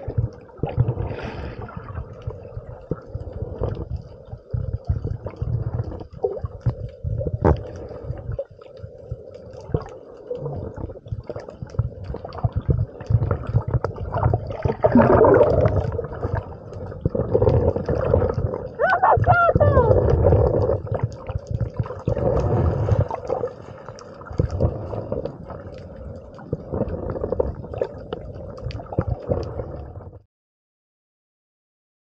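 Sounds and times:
water sloshing and gurgling: 0:00.0 - 0:30.2.

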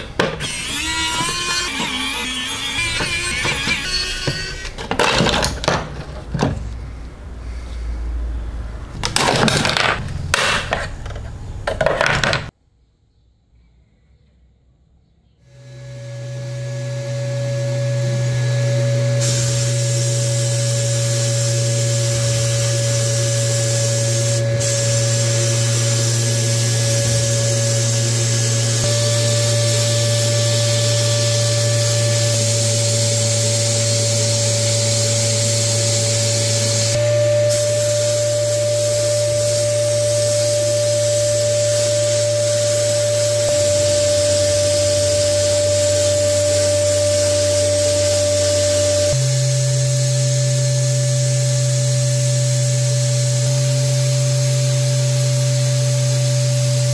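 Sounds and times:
machine hum: 0:00.0 - 0:05.6
blast gun hissing: 0:19.2 - 0:30.0.

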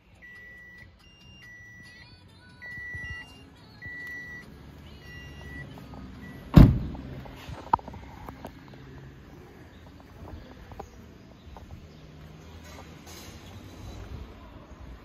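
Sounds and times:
car warning chime beeping: 0:00.0 - 0:06.6
car door slamming: 0:06.4 - 0:07.1.

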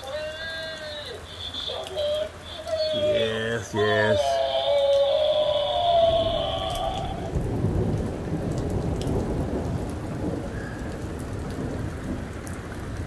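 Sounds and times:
heavy rain on street and cars: 0:00.0 - 0:13.0
rolling thunder: 0:05.4 - 0:13.0.

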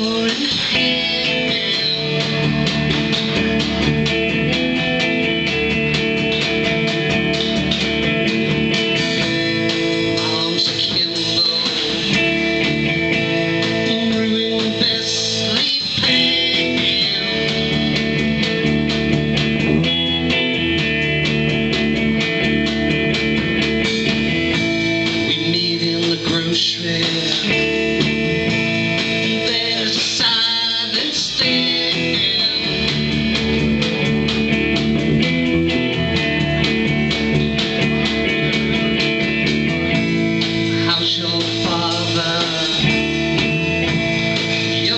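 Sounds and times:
live band playing loud music: 0:00.0 - 0:44.9
drum hits: 0:00.7 - 0:13.9.

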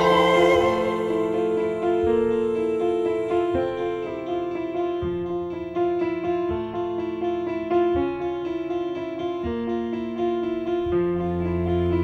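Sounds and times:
slow melodic background music: 0:00.0 - 0:08.7.

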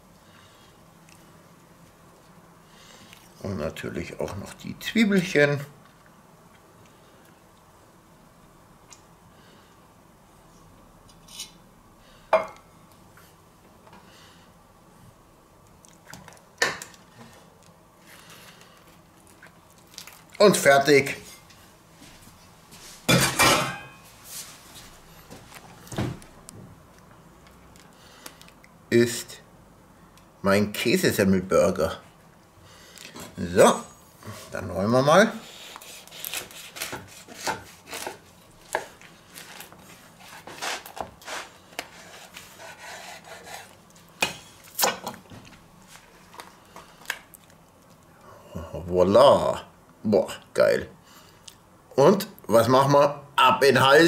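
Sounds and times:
knife crunching through bread crust: 0:35.5 - 0:43.9.

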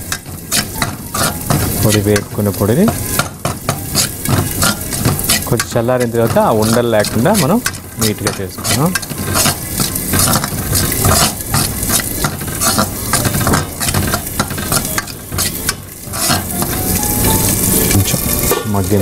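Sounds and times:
spatula scraping a pan: 0:00.0 - 0:18.6.

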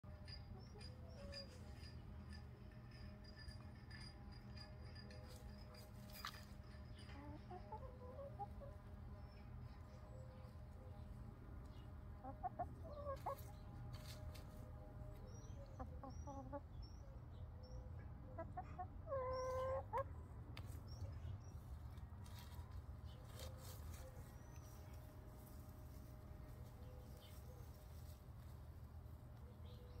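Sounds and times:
chickens clucking: 0:05.2 - 0:20.9.

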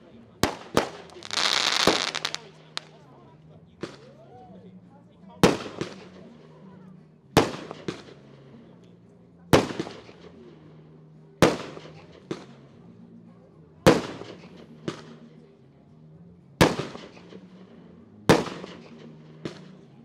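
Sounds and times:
fireworks bangs: 0:00.4 - 0:02.9.

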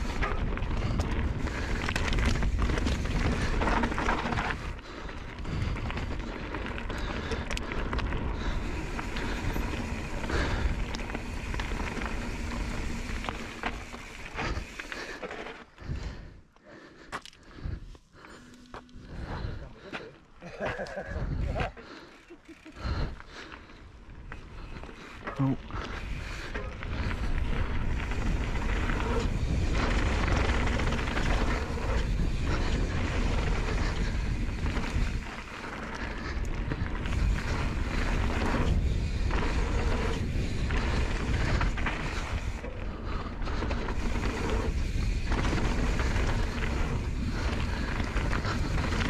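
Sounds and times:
wind rumbling on microphone: 0:00.0 - 0:14.8, 0:21.0 - 0:21.7, 0:22.7 - 0:49.0
bike clicks and rattles: 0:00.0 - 0:49.0.

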